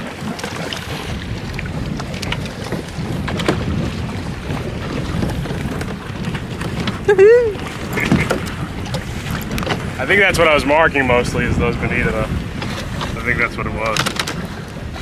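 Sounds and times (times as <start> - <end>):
splashes: 0.0 - 15.0
waves lapping against kayak: 0.0 - 15.0
wind buffeting microphone: 0.0 - 15.0.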